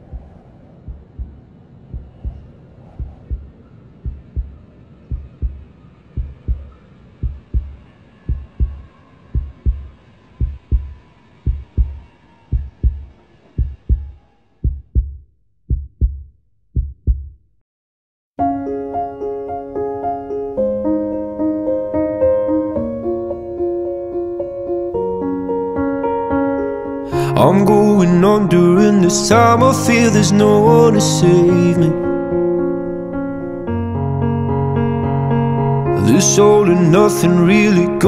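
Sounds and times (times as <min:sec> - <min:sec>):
heartbeat double thumps: 0:00.0 - 0:17.5.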